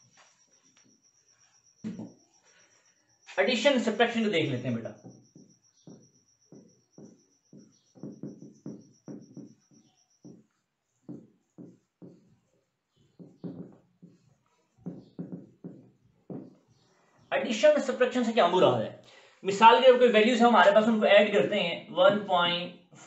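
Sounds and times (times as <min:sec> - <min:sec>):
whiteboard marker squeaking: 0:00.0 - 0:17.8.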